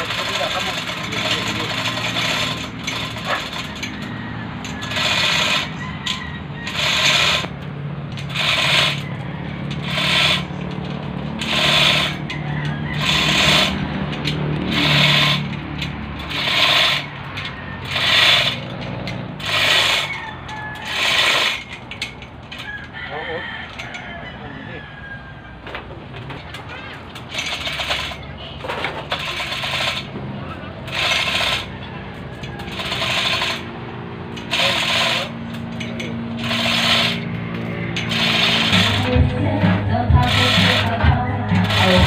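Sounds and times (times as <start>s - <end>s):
diesel engine hum: 0.0s - 42.0s.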